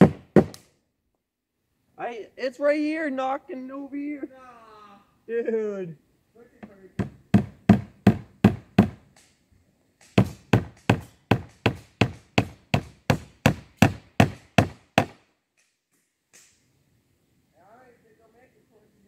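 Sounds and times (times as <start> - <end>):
hammer striking wood: 0.0 - 0.7, 6.6 - 9.2, 10.0 - 15.2.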